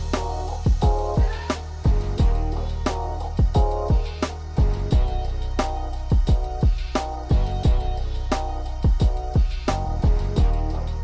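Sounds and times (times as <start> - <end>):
kick drums: 0.0 - 2.5, 3.4 - 5.2, 6.1 - 8.0, 8.8 - 10.7
held chords: 0.0 - 11.0.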